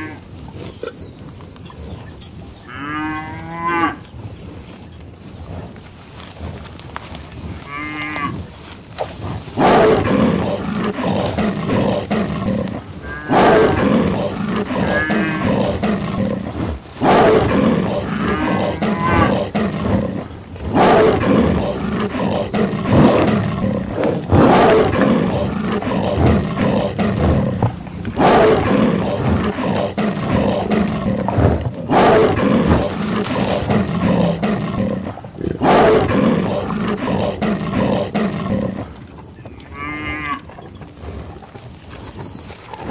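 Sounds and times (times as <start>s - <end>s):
loud animal calls: 9.6s - 38.9s.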